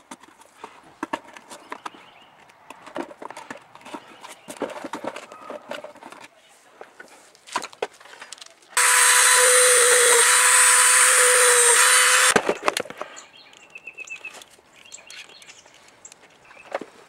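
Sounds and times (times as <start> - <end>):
handling clicks and knocks: 0.0 - 6.3
power tool motor whining: 8.8 - 12.4.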